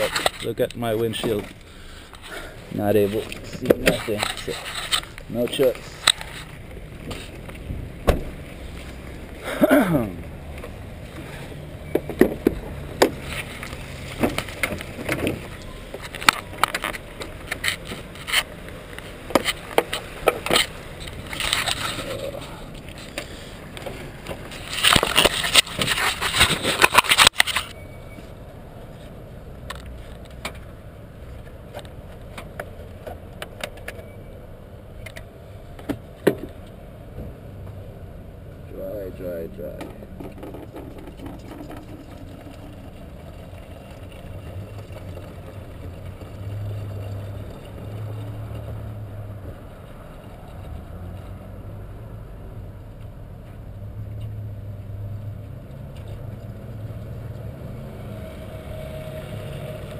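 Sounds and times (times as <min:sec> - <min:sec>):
loud scraping: 0:00.0 - 0:07.4, 0:24.4 - 0:27.8.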